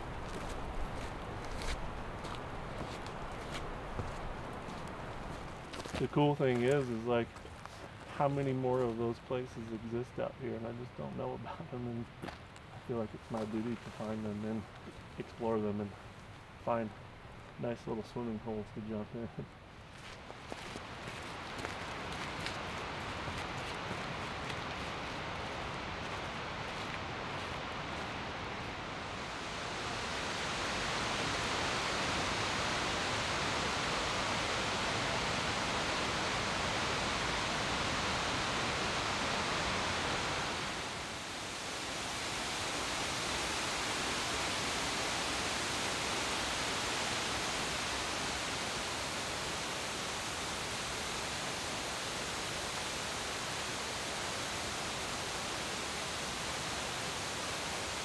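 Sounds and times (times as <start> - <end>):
waterfall rushing: 20.7 - 58.0.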